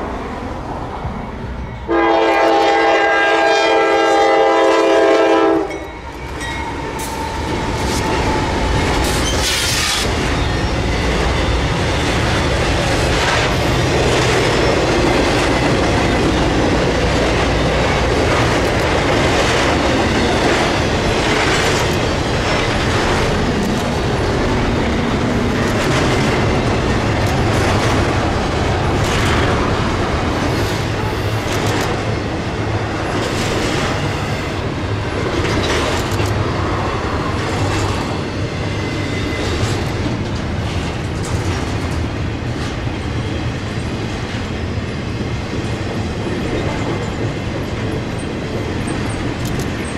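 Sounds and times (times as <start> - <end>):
freight train passing: 0.0 - 49.9
locomotive horn: 1.9 - 5.9
wheels clacking over rail joints: 6.4 - 32.4.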